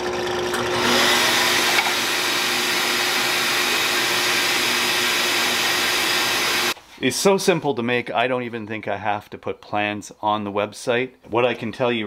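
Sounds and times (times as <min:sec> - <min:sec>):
drill press spinning sanding drum: 0:00.0 - 0:06.8
shop vacuum rushing: 0:00.0 - 0:06.8.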